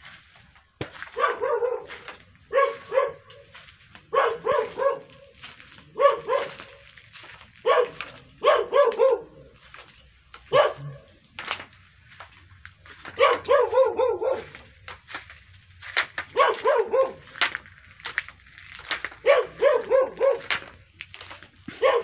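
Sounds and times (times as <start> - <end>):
dog barking: 1.0 - 9.7, 10.4 - 11.2, 13.0 - 14.8, 16.2 - 17.4, 19.2 - 20.8, 21.7 - 22.0.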